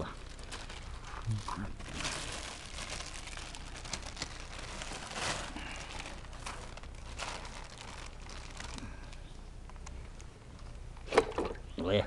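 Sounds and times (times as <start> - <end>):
plastic bag rustling: 0.0 - 9.4.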